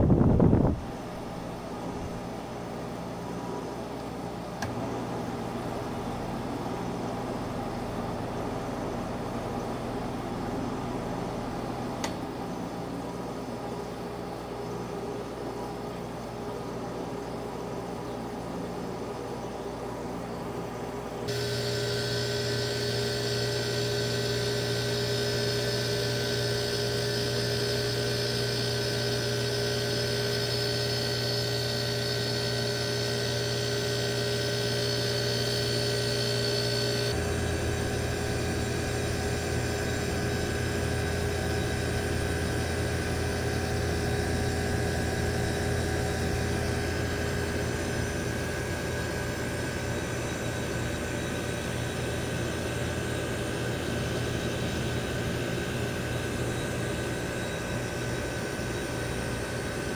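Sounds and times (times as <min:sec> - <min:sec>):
fan air rushing: 0:00.0 - 0:14.4, 0:20.4 - 0:59.9
air conditioner humming: 0:00.0 - 0:59.9.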